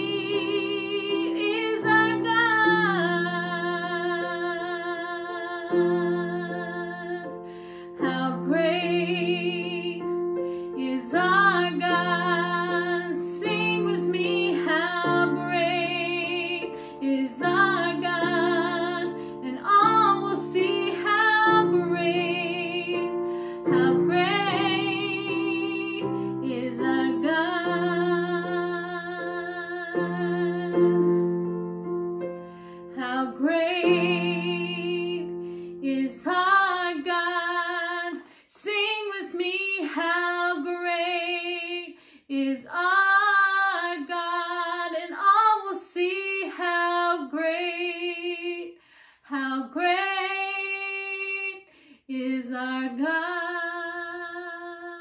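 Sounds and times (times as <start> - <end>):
woman singing a worship song: 0.0 - 31.0, 32.9 - 55.0.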